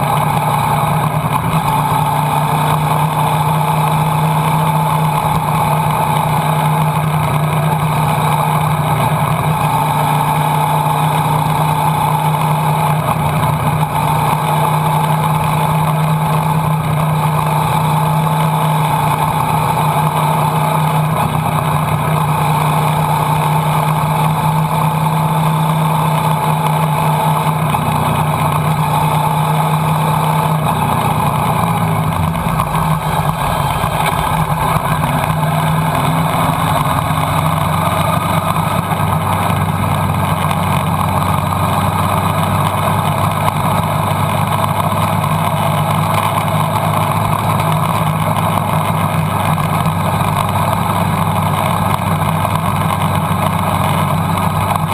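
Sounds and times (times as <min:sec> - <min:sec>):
motorcycle engine cruising: 0:00.0 - 0:54.9
wind rushing past: 0:31.5 - 0:37.4.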